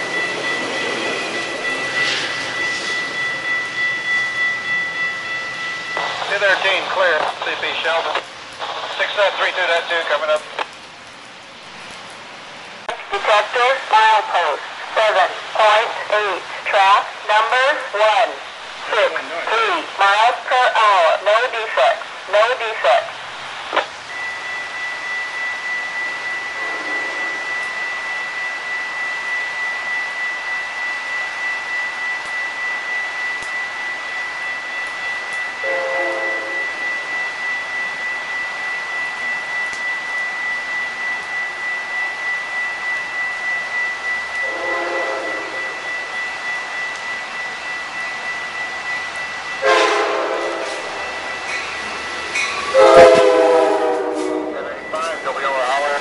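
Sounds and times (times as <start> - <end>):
crossing warning bell ringing: 0.0 - 8.4, 13.0 - 56.0
steady high tone: 0.0 - 10.2, 12.9 - 56.0
rain hissing: 0.0 - 56.0
locomotive air horn blasts: 26.5 - 27.6, 35.6 - 36.9, 44.4 - 46.0, 49.6 - 51.1, 52.7 - 54.8.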